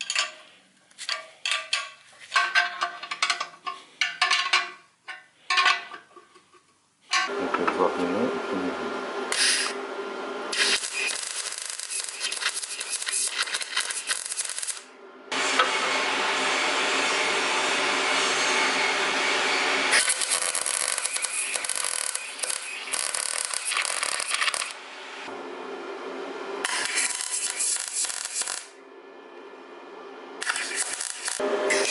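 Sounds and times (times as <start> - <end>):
tools clattering on metal: 0.0 - 7.3.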